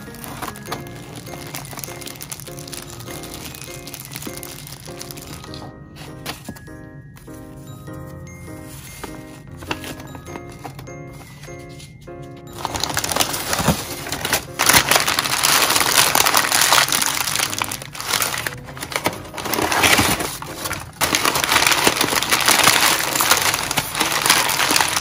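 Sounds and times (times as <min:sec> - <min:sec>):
packing paper rustling and crinkling: 0:00.0 - 0:07.6, 0:08.5 - 0:25.0.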